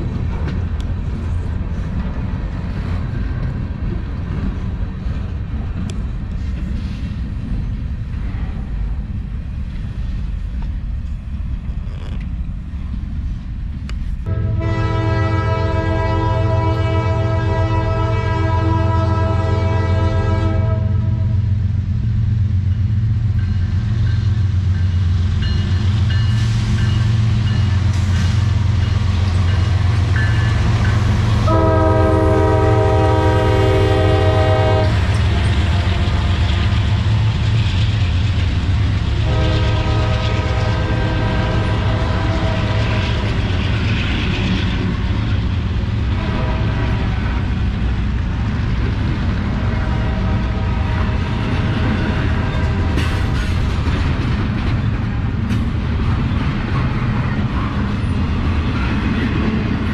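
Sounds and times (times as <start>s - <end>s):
diesel locomotive engines rumbling: 0.0s - 59.9s
train air horn blasts: 14.2s - 21.4s, 31.4s - 36.3s, 39.2s - 43.3s, 46.1s - 47.3s, 49.6s - 51.3s.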